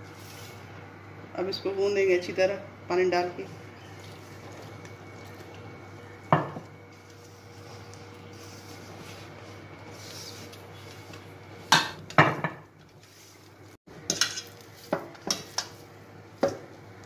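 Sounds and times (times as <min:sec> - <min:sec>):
hands kneading dough: 0:06.9 - 0:11.7.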